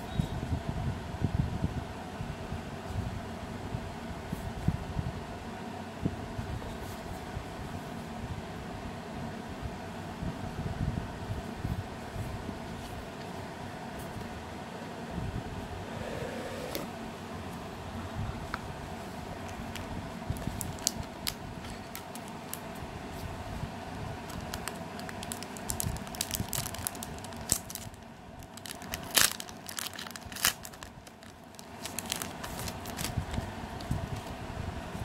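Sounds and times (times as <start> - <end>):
paper and plastic rustling: 24.3 - 34.4.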